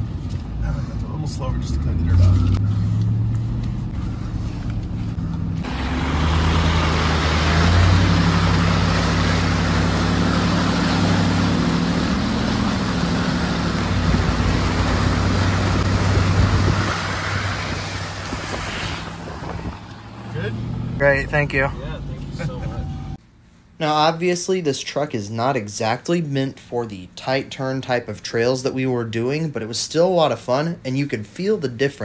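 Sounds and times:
truck engine running: 0.0s - 23.2s
water spraying against truck: 5.0s - 20.4s.

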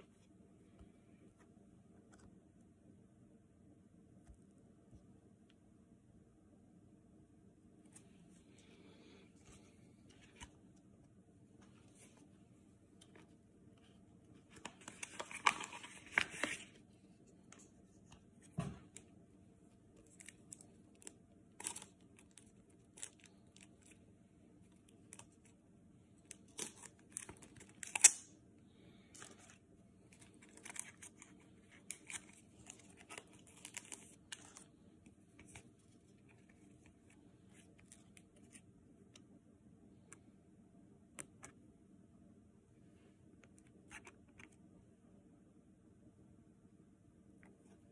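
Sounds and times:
card pack tearing and crinkling: 14.7s - 16.7s, 20.1s - 23.9s, 26.4s - 28.2s, 30.2s - 34.6s.

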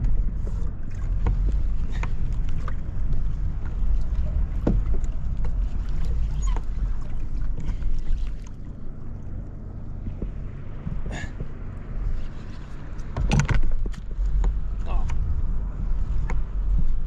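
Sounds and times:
wind and water rumble: 0.0s - 17.0s
small clicks and knocks: 12.5s - 15.2s.

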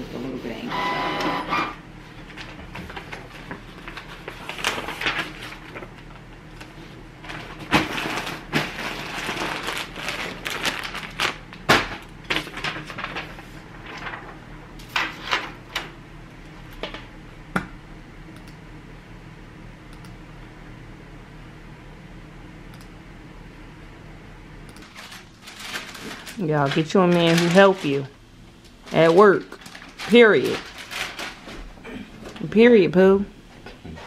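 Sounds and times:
faint steady hum: 0.0s - 34.0s
plastic bags crinkling: 2.3s - 5.9s, 7.2s - 14.4s, 24.9s - 28.1s, 28.8s - 31.7s.

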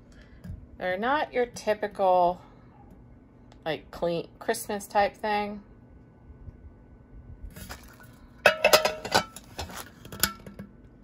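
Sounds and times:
metal bowls clinking: 8.4s - 10.4s.

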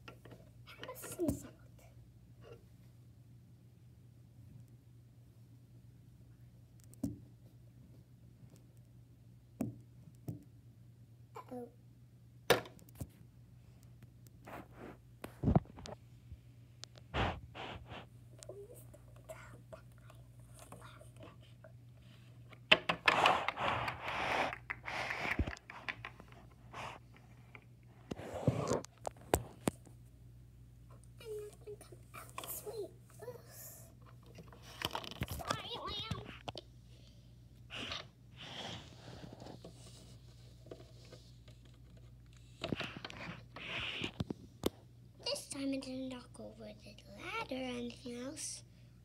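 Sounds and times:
rustling and scraping of toys: 0.0s - 1.6s, 2.4s - 2.8s, 14.4s - 16.0s, 17.0s - 30.0s, 31.2s - 36.6s, 37.7s - 48.6s
low steady hum: 0.0s - 22.7s, 24.6s - 49.0s.

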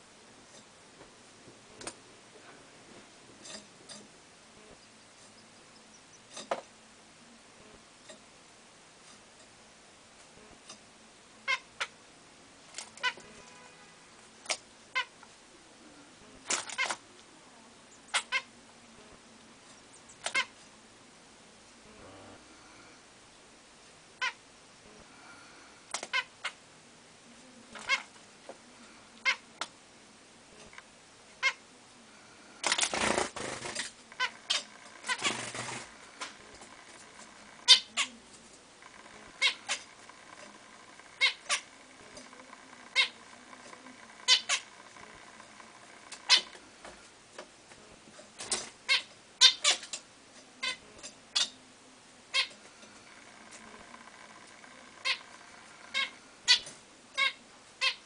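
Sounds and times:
rustling noise: 0.5s - 4.1s, 34.7s - 37.4s
finches calling: 33.0s - 38.2s, 38.9s - 46.6s, 52.3s - 58.0s.

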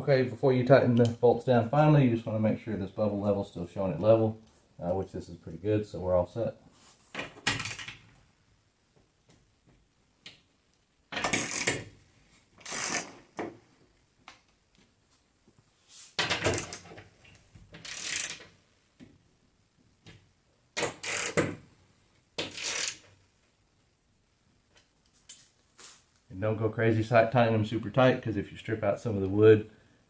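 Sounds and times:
socket ratchet clicking: 12.6s - 13.1s, 17.8s - 18.4s, 20.8s - 21.4s, 22.4s - 23.0s.

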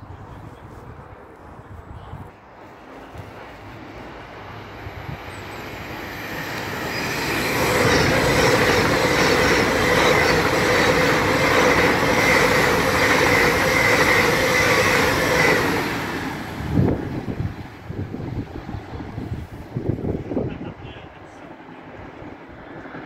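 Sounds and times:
train passing rumble: 0.0s - 23.0s
wheels whining on rails: 2.7s - 20.2s.

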